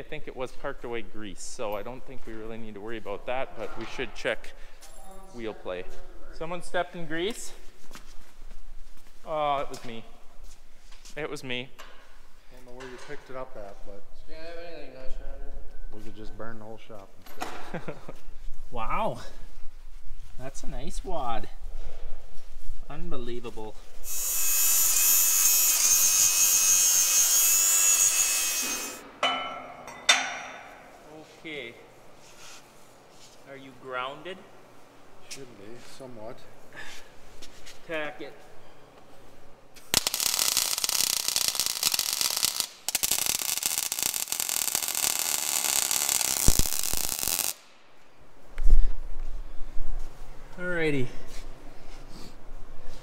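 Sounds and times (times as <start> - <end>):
arc welder crackling on steel: 24.0 - 29.0, 39.7 - 48.1
power grinder whining: 24.1 - 29.0.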